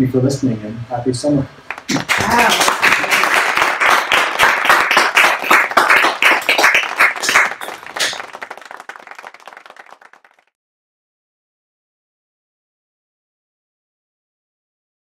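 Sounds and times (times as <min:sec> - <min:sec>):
audience applauding: 0:01.7 - 0:10.5.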